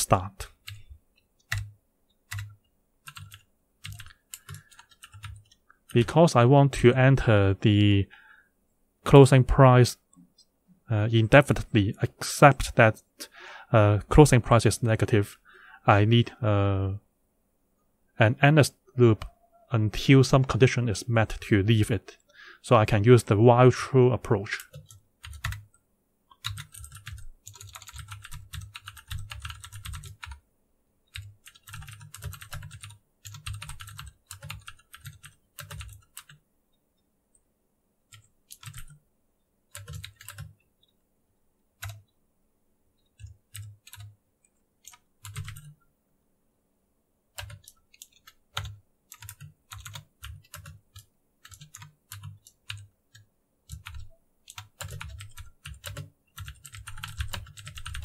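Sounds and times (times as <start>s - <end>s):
typing on computer keyboard: 0.6s - 1.7s, 2.3s - 6.0s, 24.6s - 30.4s, 31.1s - 36.4s, 38.1s - 39.0s, 39.7s - 40.6s, 41.8s - 42.0s, 43.1s - 44.1s, 44.8s - 45.8s, 47.4s - 58.0s.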